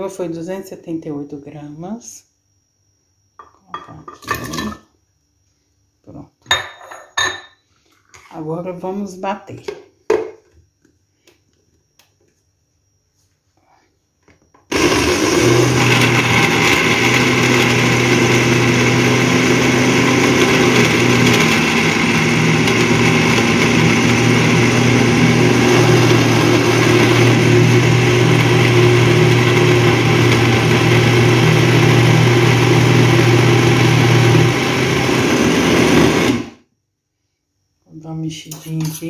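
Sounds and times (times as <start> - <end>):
blender running: 14.7 - 36.6.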